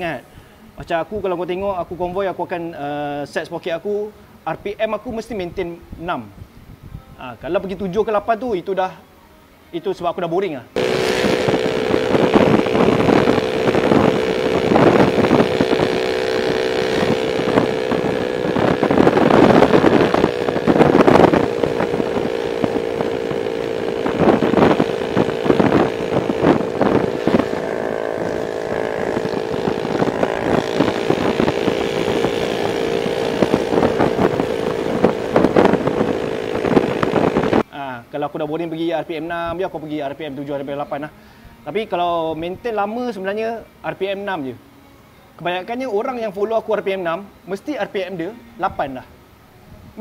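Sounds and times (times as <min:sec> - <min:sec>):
wind noise on microphone: 0:04.5 - 0:08.6, 0:10.8 - 0:37.7, 0:49.6 - 0:50.0
motorcycle cruising: 0:10.8 - 0:37.7.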